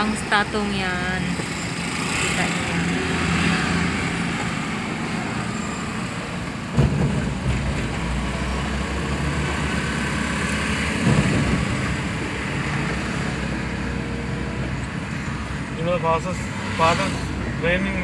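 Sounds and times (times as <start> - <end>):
vehicle engine and road noise: 0.0 - 18.0.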